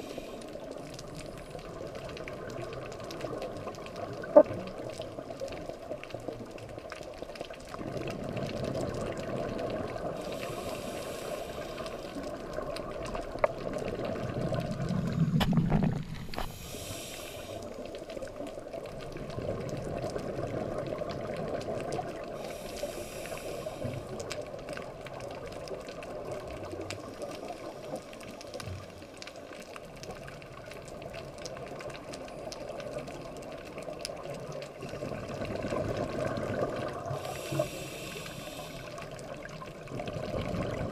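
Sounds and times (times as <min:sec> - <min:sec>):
regulator hissing inhalations: 0:10.2 - 0:12.0, 0:16.4 - 0:17.8, 0:22.4 - 0:24.0, 0:37.2 - 0:39.1
rush of exhaled bubbles: 0:34.7 - 0:40.9.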